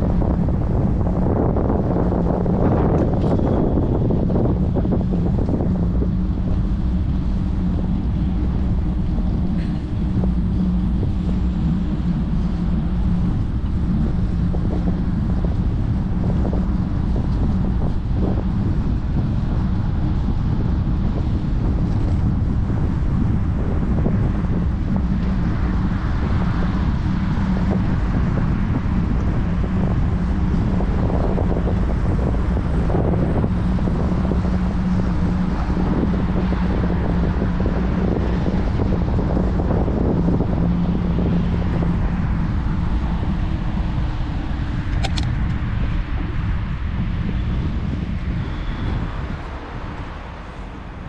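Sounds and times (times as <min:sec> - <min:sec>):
bicycle road rumble: 0:00.0 - 0:51.0
steady low hum: 0:00.0 - 0:51.0
wind rushing over microphone: 0:00.0 - 0:51.0
sharp click: 0:44.9 - 0:45.4.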